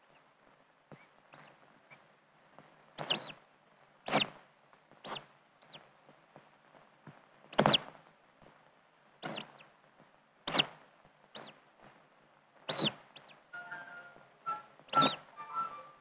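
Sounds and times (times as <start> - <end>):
chick peeping: 3.0 - 3.4, 4.0 - 4.4, 5.0 - 5.9, 7.5 - 7.9, 9.2 - 9.7, 10.5 - 11.6, 12.7 - 16.0.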